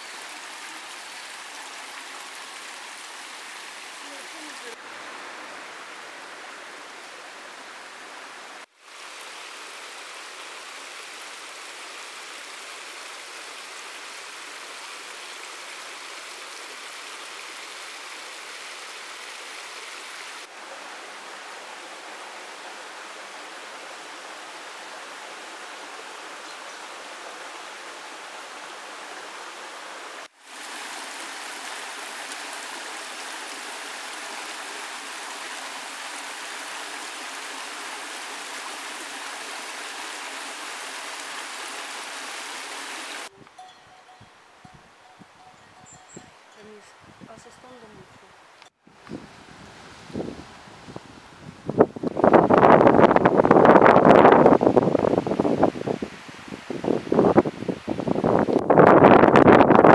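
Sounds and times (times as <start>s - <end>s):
stream flowing over stones: 0.0s - 43.4s.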